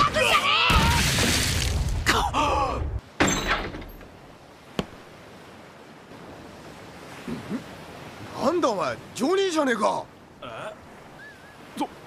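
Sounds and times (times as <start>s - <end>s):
body thud on wooden deck: 4.7s - 5.1s.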